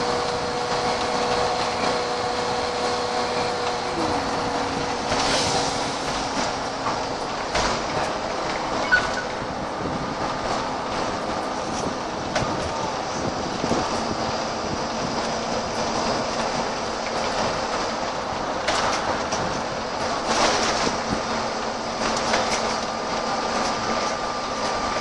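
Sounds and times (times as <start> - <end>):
bus diesel engine running: 0.0 - 25.0
road and cabin noise: 0.0 - 25.0
sharp clicks from bus body: 10.5 - 12.8, 18.6 - 21.4, 22.0 - 25.0.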